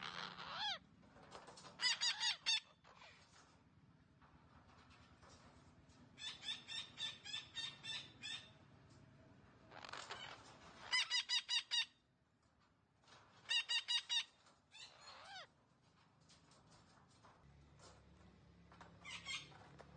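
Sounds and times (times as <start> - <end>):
parakeets squawking: 0.0 - 0.8, 1.8 - 2.6, 14.9 - 15.5.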